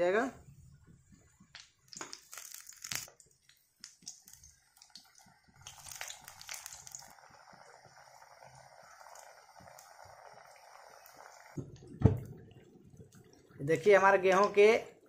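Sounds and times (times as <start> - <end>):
oil sizzling: 0.7 - 15.0.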